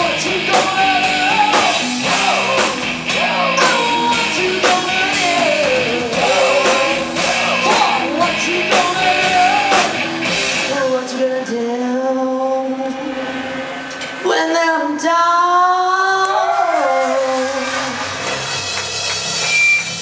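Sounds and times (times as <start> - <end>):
woman singing: 0.0 - 10.0, 10.6 - 13.2, 14.2 - 18.1
drum kit: 0.0 - 11.3, 16.4 - 20.0
electric guitars: 0.0 - 15.2.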